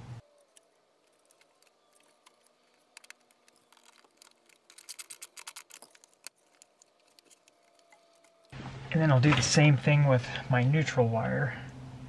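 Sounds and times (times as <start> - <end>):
faint metallic clicks and scrapes: 0.2 - 8.6.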